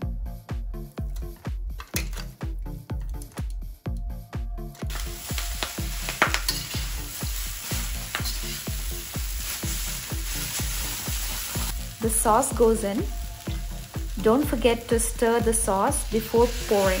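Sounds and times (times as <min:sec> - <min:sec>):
background music with steady beat: 0:00.0 - 0:17.0
noodles sizzling in a wok: 0:04.9 - 0:17.0.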